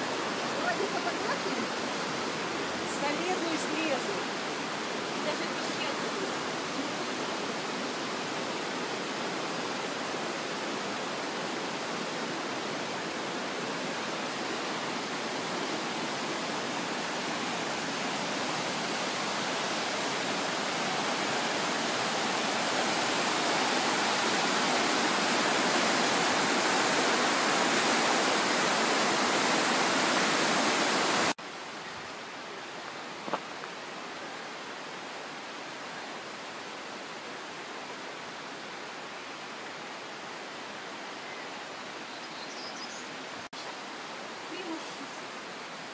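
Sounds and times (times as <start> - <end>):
river rapids rushing: 0.0 - 42.0.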